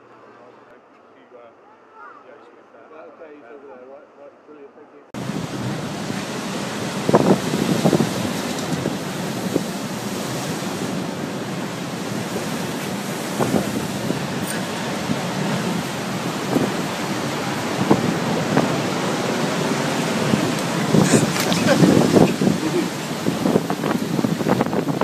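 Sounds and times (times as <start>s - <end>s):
waves crashing against sea wall: 5.2s - 25.0s
wind buffeting microphone: 5.2s - 25.0s.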